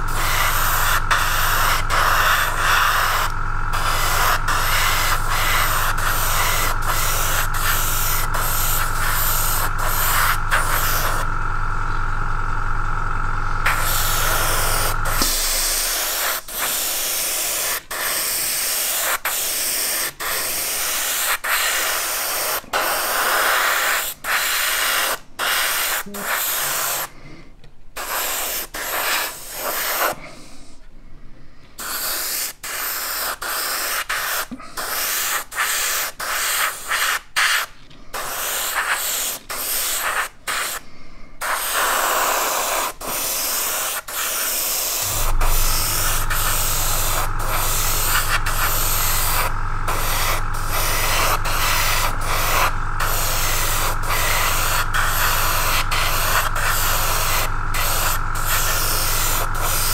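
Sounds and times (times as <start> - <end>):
airbrush spraying hiss: 0.0 - 12.0, 13.5 - 27.1, 28.0 - 30.3, 31.8 - 40.8, 41.4 - 59.9
steady low hum: 0.0 - 21.0, 45.0 - 59.9.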